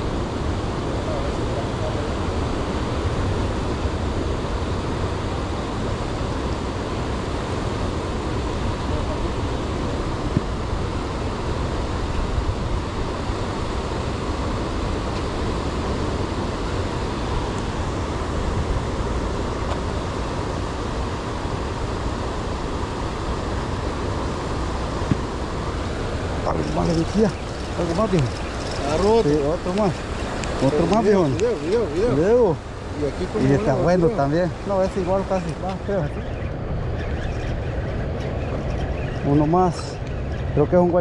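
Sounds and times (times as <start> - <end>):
steady low rushing noise: 0.0 - 41.0.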